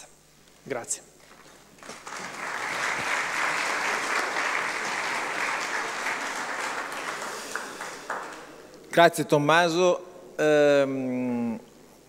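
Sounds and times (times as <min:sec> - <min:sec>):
audience applauding: 0:01.3 - 0:08.8.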